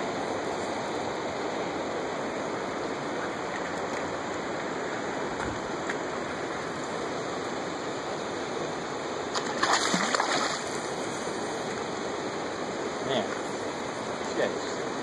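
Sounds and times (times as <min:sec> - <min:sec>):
river water rushing: 0:00.0 - 0:15.0
fish splashing at the surface: 0:09.3 - 0:11.0.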